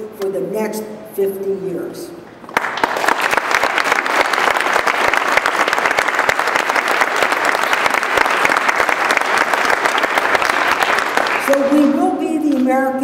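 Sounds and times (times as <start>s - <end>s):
audience applauding: 2.5s - 12.1s.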